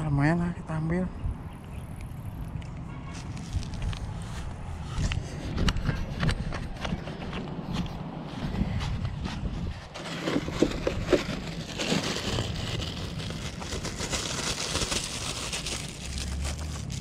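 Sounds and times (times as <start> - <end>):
plastic bag rustling and crinkling: 9.9 - 17.0.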